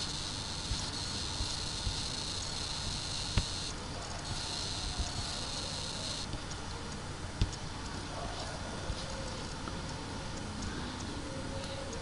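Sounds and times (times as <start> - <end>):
microphone hiss: 0.0 - 12.0
computer mouse clicks: 3.2 - 6.7.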